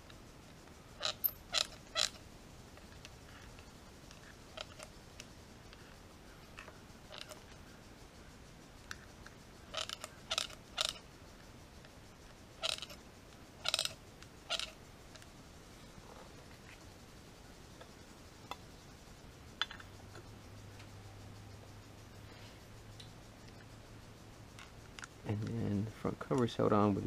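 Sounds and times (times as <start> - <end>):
oil can pump squirting and creaking: 12.6 - 13.0, 13.6 - 15.3.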